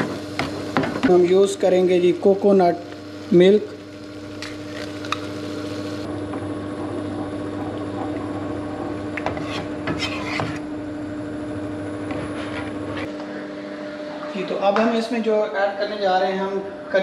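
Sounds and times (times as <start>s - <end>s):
steady hum: 0.0s - 17.0s.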